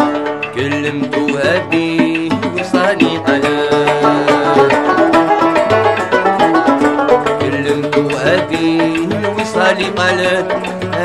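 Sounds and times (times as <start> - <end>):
fast plucked-string melody: 0.0 - 11.0
held bass notes: 3.2 - 8.7.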